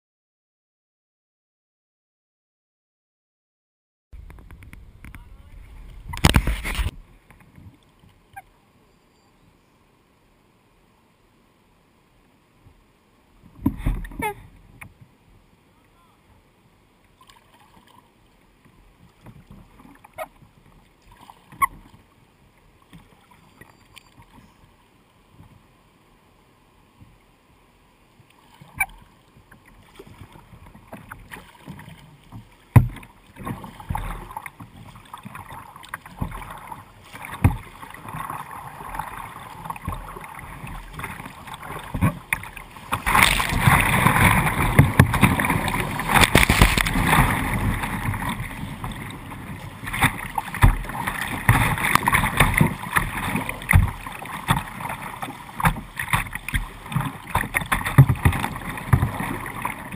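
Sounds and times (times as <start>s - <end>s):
water crashing and splashing: 4.2s - 7.9s, 28.3s - 59.9s.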